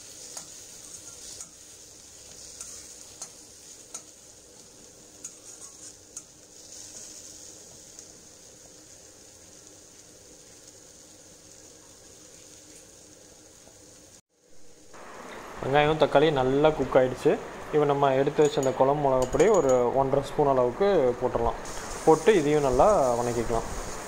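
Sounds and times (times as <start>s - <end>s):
masala sizzling in a pan: 0.0s - 24.0s
steel spatula clicking on pan: 0.2s - 1.6s, 2.2s - 4.2s, 5.2s - 6.4s.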